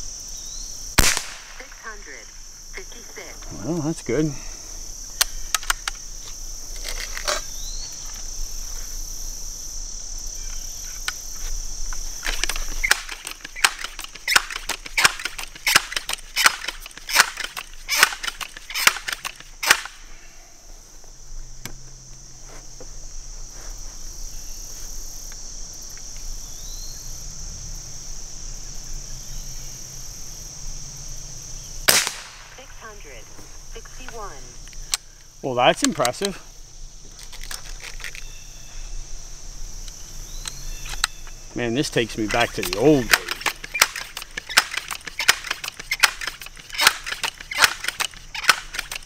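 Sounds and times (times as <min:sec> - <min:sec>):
insects droning: 0:00.0 - 0:49.0
air rifle pump lever clacks: 0:42.3 - 0:49.0.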